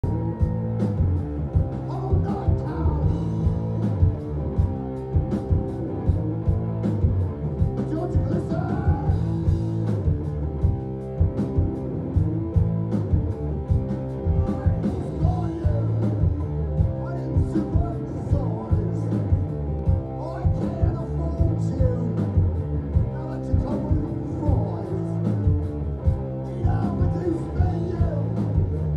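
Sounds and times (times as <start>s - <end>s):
live heavy rock band: 0.0s - 28.9s
person singing: 1.8s - 3.6s, 7.9s - 9.5s, 14.2s - 19.4s, 20.0s - 22.4s, 26.4s - 28.8s.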